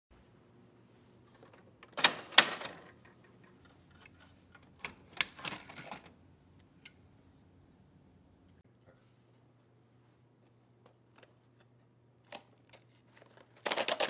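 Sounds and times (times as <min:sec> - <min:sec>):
plastic rattle: 0:12.7 - 0:14.0.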